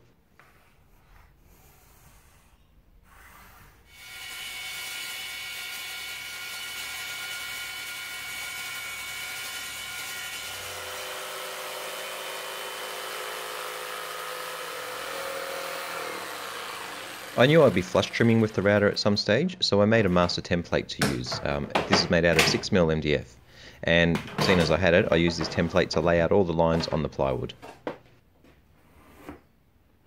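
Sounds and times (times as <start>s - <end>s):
jigsaw cutting: 3.9s - 19.2s
table saw whining: 3.9s - 19.4s, 24.3s - 27.4s.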